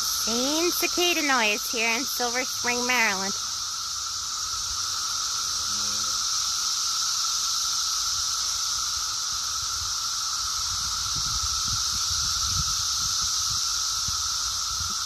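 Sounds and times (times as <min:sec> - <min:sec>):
cicadas chorusing: 0:00.0 - 0:15.0
wind rumble on microphone: 0:10.6 - 0:15.0.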